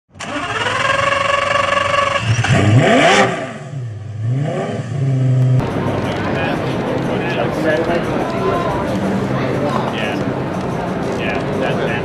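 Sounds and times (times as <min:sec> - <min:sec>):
sports car engine revving: 0:00.2 - 0:08.1.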